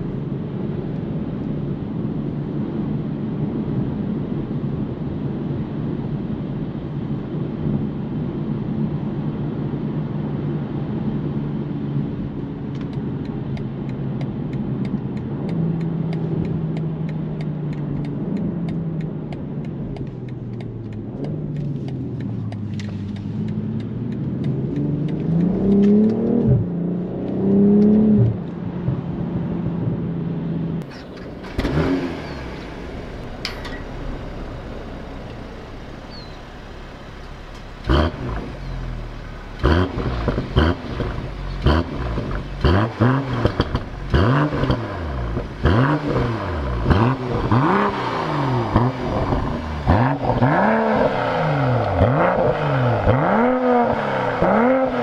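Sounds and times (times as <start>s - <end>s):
car engine revving: 14.1s - 55.0s.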